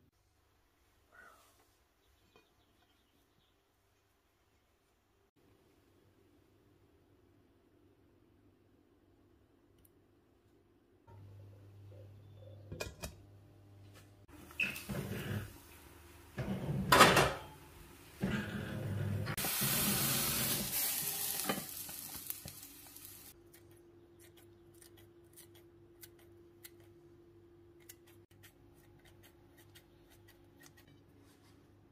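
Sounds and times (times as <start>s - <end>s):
frying sizzle and steam hiss: 14.3s - 23.4s
frying pan and glass lid clattering: 16.8s - 17.6s.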